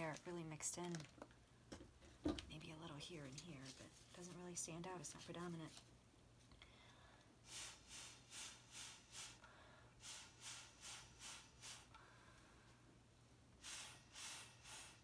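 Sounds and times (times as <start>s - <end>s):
breath puffs through straw: 13.6s - 15.0s.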